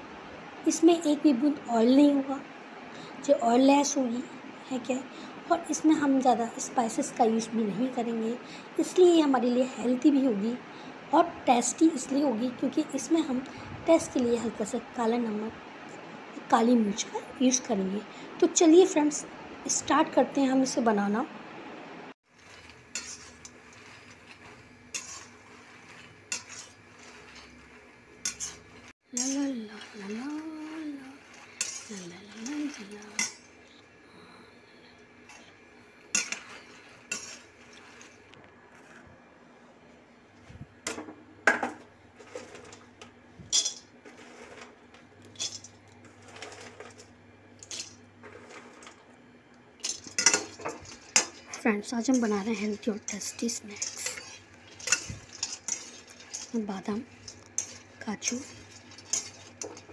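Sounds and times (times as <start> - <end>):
spatula scraping nuts in pan: 22.2 - 33.8, 35.3 - 39.0, 42.2 - 42.9, 43.5 - 49.0, 49.8 - 59.9
utensil clinking on metal: 22.4 - 33.8, 43.5 - 44.7, 49.8 - 59.9.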